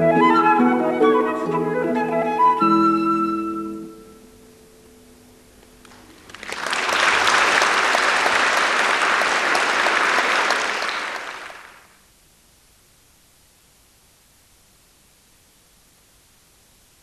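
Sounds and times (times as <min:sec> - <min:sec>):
flute and harp: 0:00.0 - 0:04.4
audience applauding: 0:05.8 - 0:11.9.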